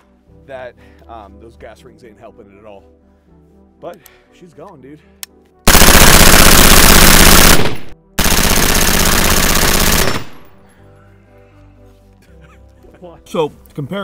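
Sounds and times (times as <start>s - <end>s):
rifle firing rapid shots: 5.7s - 10.6s.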